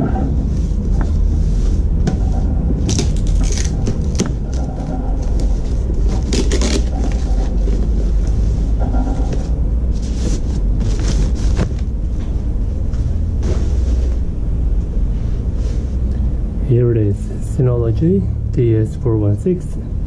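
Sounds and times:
low rumble: 0.0s - 20.0s
foam packaging rustling: 2.8s - 8.4s, 9.9s - 11.9s.

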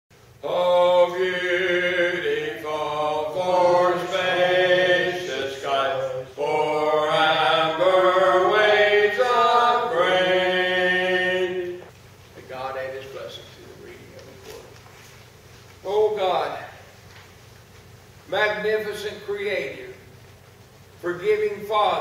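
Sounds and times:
voices singing chant-like melody: 0.4s - 11.9s.

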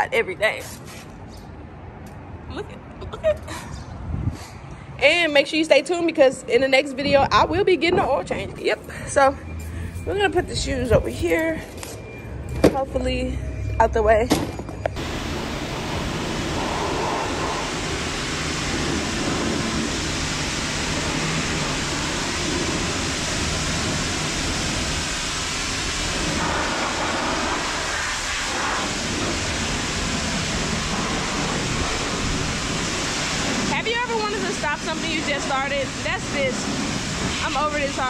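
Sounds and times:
pressure washer spraying water: 15.0s - 38.0s.

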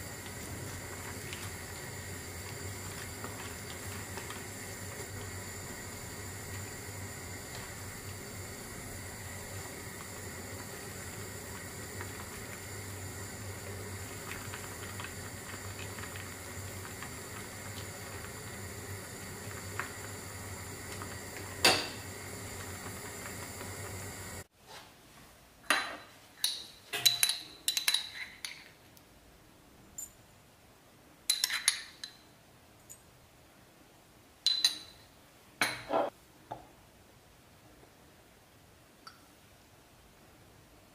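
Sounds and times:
simmering pot hissing and humming: 0.0s - 24.5s
metal spoon clinking on bowls: 25.8s - 28.7s, 31.3s - 32.2s, 34.4s - 35.0s.

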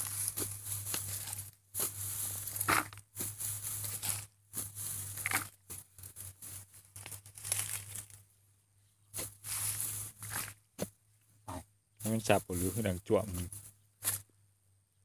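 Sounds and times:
digging tool chopping soil: 0.0s - 4.2s
crumbling clods: 0.0s - 8.2s, 9.2s - 10.6s
rustling straw: 0.0s - 8.4s, 9.0s - 10.7s, 12.1s - 14.3s.

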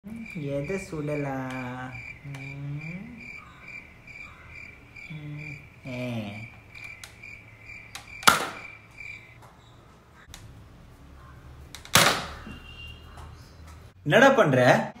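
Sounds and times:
high chirping tick: 6.5s - 9.4s
toy blaster firing a dart: 8.2s - 8.6s, 11.8s - 12.4s.

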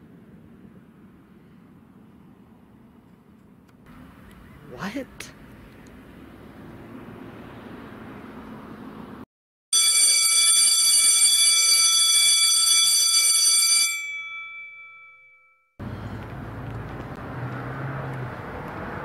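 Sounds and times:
electric school bell ringing: 9.7s - 15.7s.

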